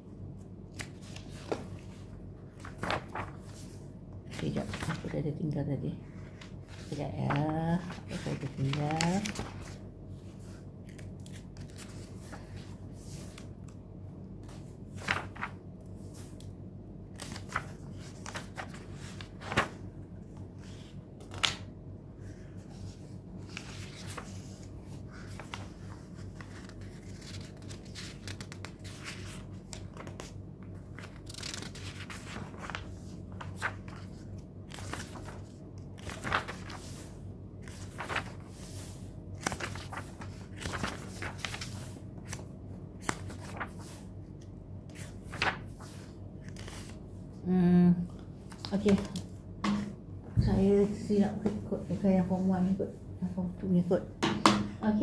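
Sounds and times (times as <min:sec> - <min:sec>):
book pages turning: 0:00.6 - 0:05.1, 0:06.2 - 0:13.8, 0:14.4 - 0:16.5, 0:17.1 - 0:21.7, 0:22.3 - 0:47.0
sharp paper clicks: 0:31.0 - 0:32.8, 0:34.7 - 0:36.8, 0:37.6 - 0:38.4, 0:39.4 - 0:42.4.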